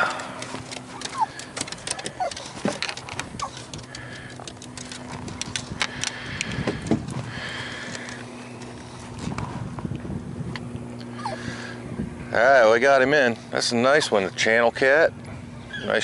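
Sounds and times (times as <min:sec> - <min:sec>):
fishing tackle clicking and knocking: 0:00.0 - 0:07.2
steady low hum: 0:00.0 - 0:16.0.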